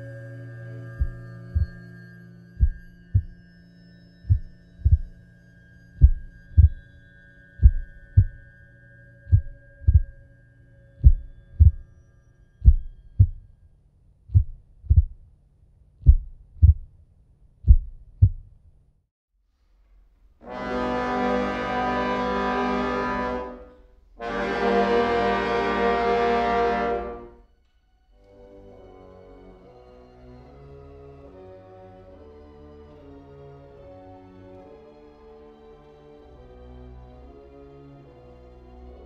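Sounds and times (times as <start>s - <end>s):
low hum: 0.0s - 18.7s
heartbeat double thumps: 1.0s - 1.8s, 2.6s - 3.4s, 4.3s - 5.1s, 6.0s - 6.8s, 7.6s - 8.4s, 9.3s - 10.2s, 11.0s - 11.8s, 12.6s - 13.4s, 14.3s - 15.3s, 16.0s - 17.0s, 17.6s - 18.6s
brass-like music chord: 20.4s - 27.5s.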